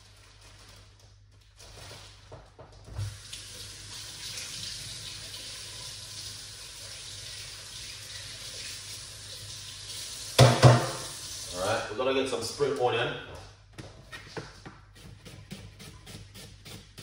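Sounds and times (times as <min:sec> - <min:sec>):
kitchen tap running: 0:03.0 - 0:11.8
loud knocks: 0:10.4 - 0:11.0.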